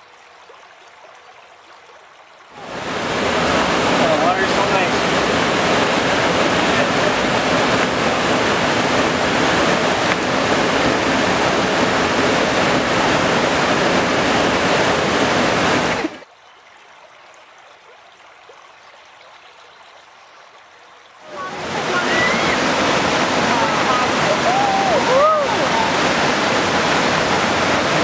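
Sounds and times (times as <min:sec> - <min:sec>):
stream water rushing over rocks: 0:00.0 - 0:28.0.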